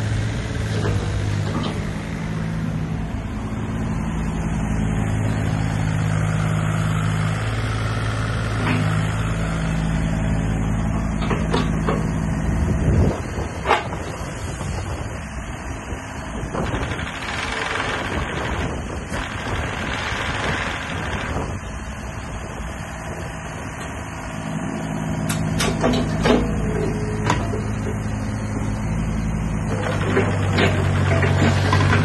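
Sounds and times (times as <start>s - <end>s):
excavator engine running: 0.0s - 32.0s.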